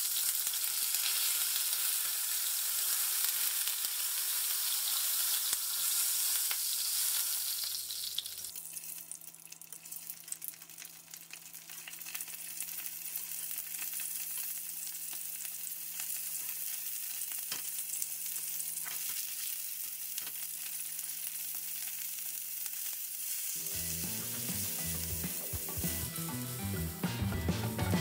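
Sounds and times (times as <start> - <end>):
steaks sizzling in oil: 0.0 - 27.3
background music: 23.6 - 28.0.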